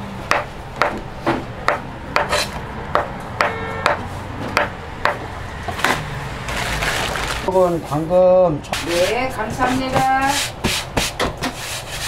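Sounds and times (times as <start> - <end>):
knife chopping on wooden board: 0.3 - 6.0.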